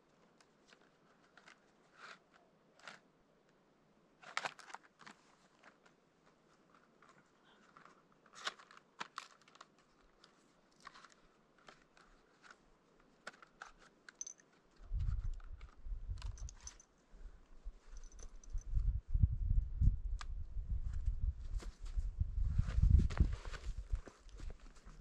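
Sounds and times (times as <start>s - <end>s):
gear clicks and rustles: 6.5s - 12.6s, 13.2s - 16.9s, 17.8s - 18.7s
wind buffeting microphone: 18.3s - 24.0s.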